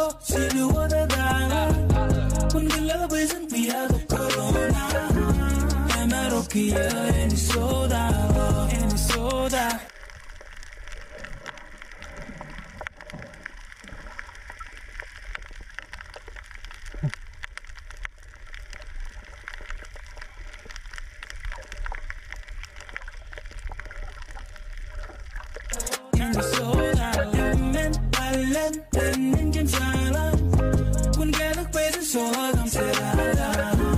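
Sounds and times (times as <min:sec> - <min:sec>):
background music: 0:00.0 - 0:09.9, 0:25.8 - 0:33.9
crackle of small clicks: 0:09.1 - 0:25.8.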